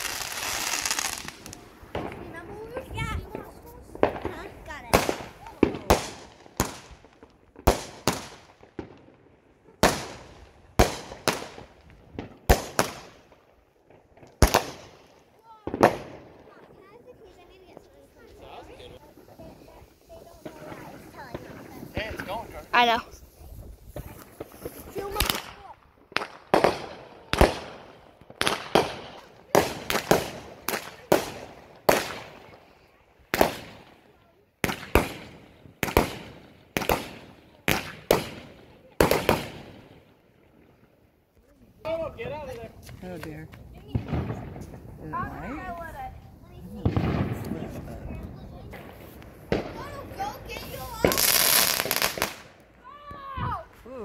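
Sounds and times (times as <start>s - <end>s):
aerial fireworks bangs: 0.0s - 9.0s, 15.6s - 16.3s, 23.9s - 32.5s, 34.6s - 39.9s, 43.8s - 45.0s, 46.7s - 48.0s, 48.6s - 52.5s.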